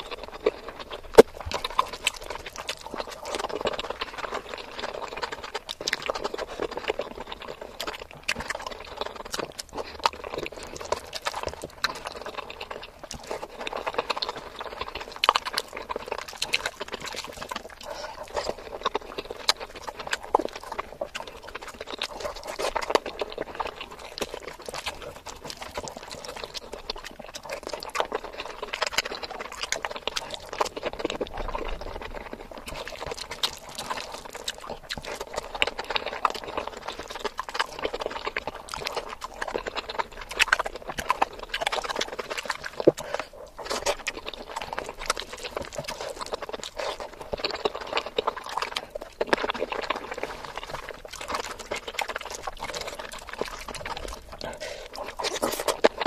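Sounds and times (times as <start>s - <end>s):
wet chewing and mouth clicks: 0.0s - 56.0s.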